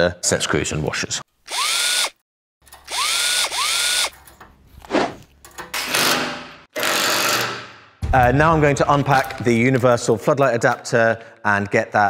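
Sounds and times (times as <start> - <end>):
cordless drill motor whining: 1.5 - 2.2, 2.8 - 4.1.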